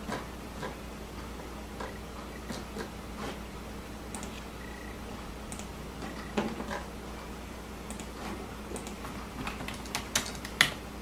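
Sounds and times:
low steady hum: 0:00.0 - 0:11.0
keyboard and mouse clicks: 0:04.1 - 0:04.4, 0:05.5 - 0:06.8, 0:07.9 - 0:10.8.

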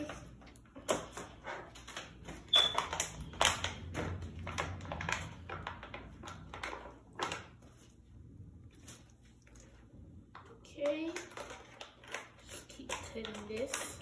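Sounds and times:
clicks of small hard objects: 0:10.8 - 0:14.0.

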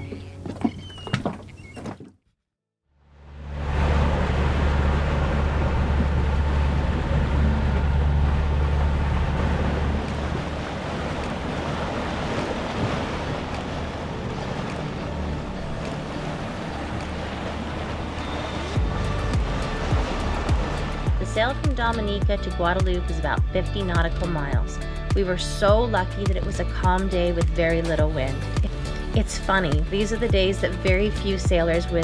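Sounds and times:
boat engine running: 0:02.9 - 0:32.0
water rushing past hull: 0:03.0 - 0:31.9
wind on microphone: 0:03.6 - 0:23.0
music: 0:09.7 - 0:32.0.

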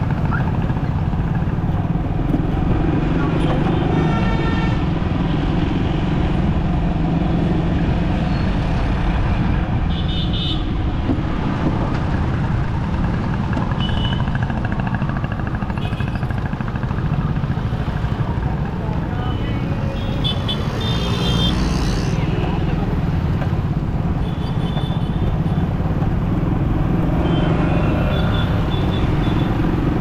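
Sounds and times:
road traffic engines and tyres: 0:00.0 - 0:30.0.

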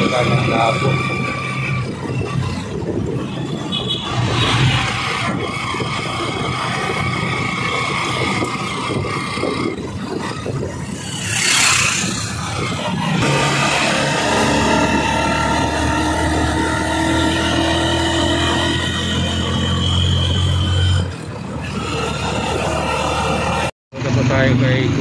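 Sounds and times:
motorcycle tricycle engine: 0:00.0 - 0:25.0
rushing sound: 0:08.9 - 0:18.0.

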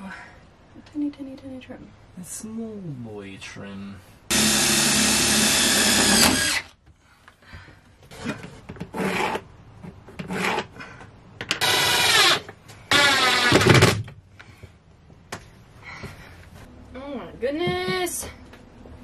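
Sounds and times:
cordless drill driving screws: 0:04.3 - 0:06.7, 0:11.6 - 0:14.0.

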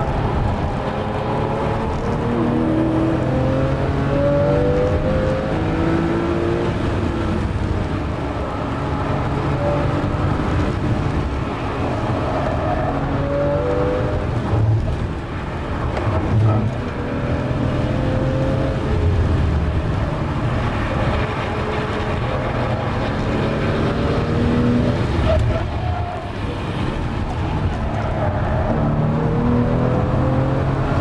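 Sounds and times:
car engine revving: 0:00.0 - 0:15.2, 0:16.0 - 0:25.8, 0:28.6 - 0:31.0
road and tyre noise: 0:00.0 - 0:31.0.

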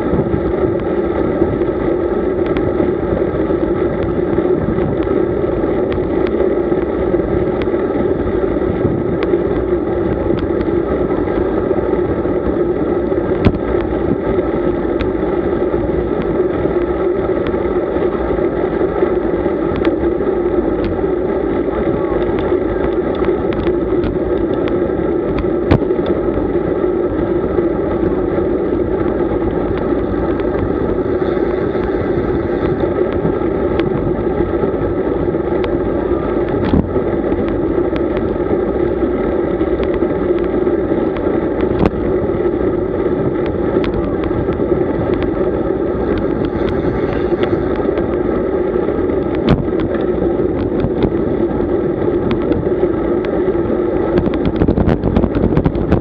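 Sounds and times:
bicycle road noise: 0:00.0 - 0:56.0
rushing wind: 0:00.0 - 0:56.0
sharp ticks and knocks: 0:39.8 - 0:42.1, 0:43.3 - 0:51.2.

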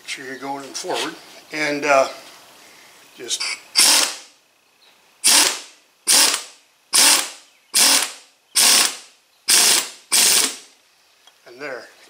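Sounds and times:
pneumatic wrench bursts: 0:03.4 - 0:04.4, 0:05.2 - 0:10.7.

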